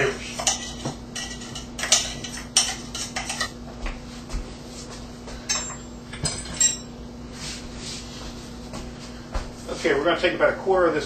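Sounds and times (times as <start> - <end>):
utensil clinking against bowl: 0.4 - 3.6.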